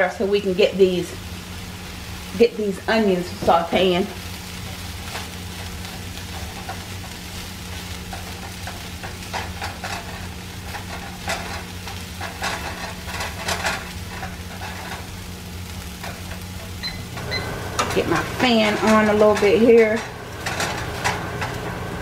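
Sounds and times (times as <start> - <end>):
vegetables sizzling in a pan: 0.0 - 22.0
spatula stirring and scraping: 4.5 - 22.0
low hum: 8.1 - 22.0.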